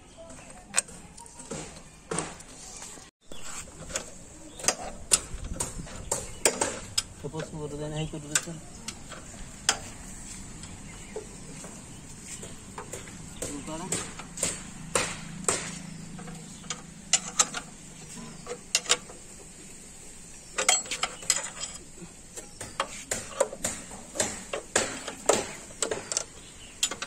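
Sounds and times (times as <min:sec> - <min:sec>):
spanners clinking on metal bolts: 0:03.8 - 0:09.9, 0:15.7 - 0:19.3, 0:20.5 - 0:27.0.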